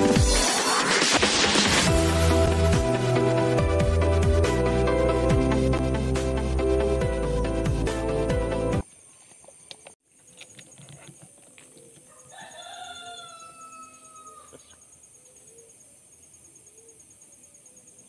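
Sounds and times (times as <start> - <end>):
background music: 0.0 - 8.8
rooster crowing: 12.0 - 14.7.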